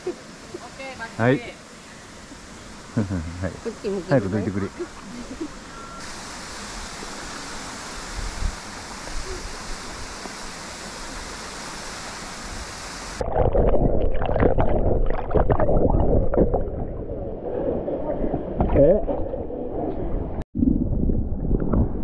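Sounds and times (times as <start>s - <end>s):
water rushing: 0.0s - 20.4s
muffled splashing and gurgling: 13.2s - 22.0s.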